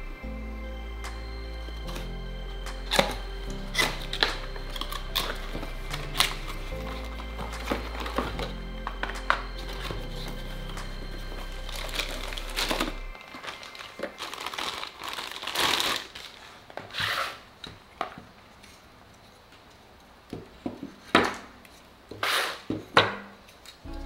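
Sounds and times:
cardboard and plastic bag rustling: 0:02.8 - 0:17.6.

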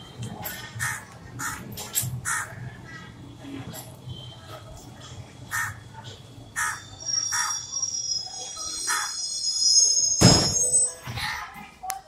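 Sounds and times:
crows cawing: 0:02.2 - 0:02.6, 0:05.5 - 0:05.8, 0:06.6 - 0:07.5
high-pitched whine: 0:06.4 - 0:11.2.

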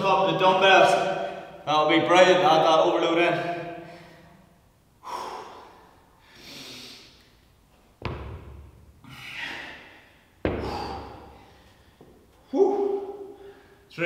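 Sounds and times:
man breathing hard: 0:03.7 - 0:07.4, 0:09.0 - 0:13.9
dumbbells thudding on floor: 0:08.0 - 0:08.9, 0:10.4 - 0:11.4.

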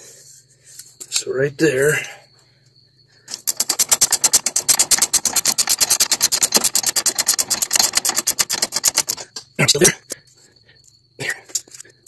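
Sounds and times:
ratchet clicking rapidly: 0:03.3 - 0:09.4.

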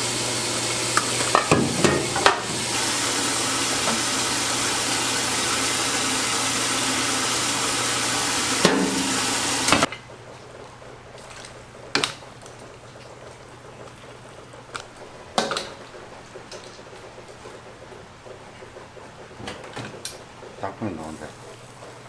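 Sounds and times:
kitchen rushing hiss: 0:00.0 - 0:09.9.

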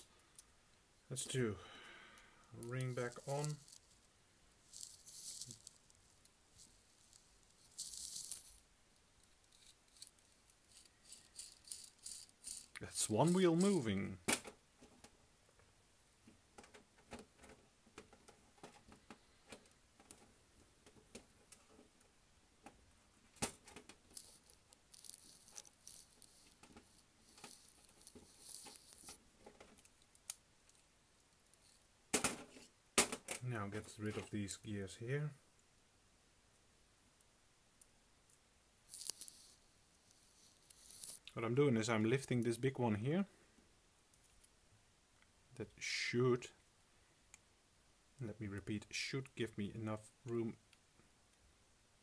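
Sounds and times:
small gear clicks: 0:02.5 - 0:03.9, 0:09.2 - 0:14.1, 0:24.1 - 0:30.8, 0:38.9 - 0:41.4
model train parts rattling: 0:02.5 - 0:04.0, 0:04.7 - 0:14.5, 0:23.4 - 0:30.8, 0:38.9 - 0:41.3
scratchy rustling of handling: 0:02.5 - 0:14.2, 0:23.4 - 0:34.5, 0:38.9 - 0:42.5.

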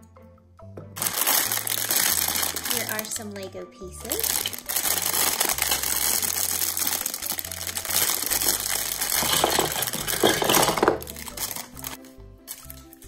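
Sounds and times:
background music: 0:00.0 - 0:13.0
plastic bag crinkling: 0:01.0 - 0:13.0
plastic bricks clattering on table: 0:08.1 - 0:11.9.

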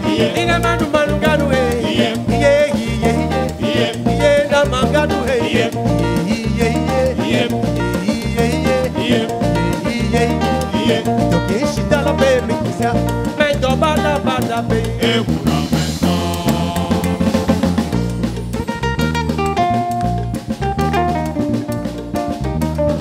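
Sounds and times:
voices singing: 0:00.0 - 0:18.1
bass guitar: 0:00.0 - 0:23.0
drum kit: 0:00.0 - 0:23.0
electric guitar: 0:00.0 - 0:23.0.

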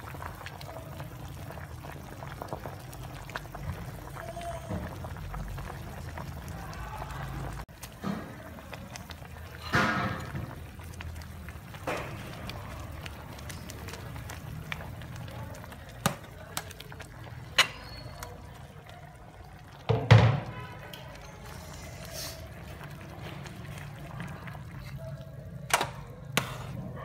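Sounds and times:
soup bubbling in pot: 0:00.0 - 0:27.0
metal ladle clinking against pot: 0:17.5 - 0:18.4.

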